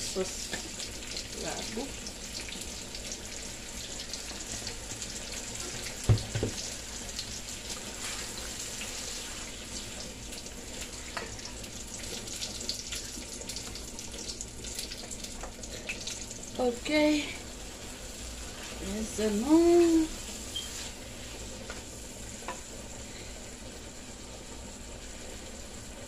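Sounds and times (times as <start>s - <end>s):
food sizzling in a wok: 0.0s - 26.0s
thump: 6.1s - 6.6s.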